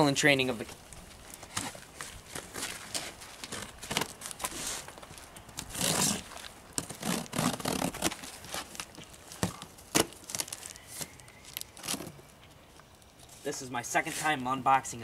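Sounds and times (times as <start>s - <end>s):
cardboard rustling and tearing: 1.1s - 12.2s
blade cutting tape and cardboard: 5.6s - 8.7s.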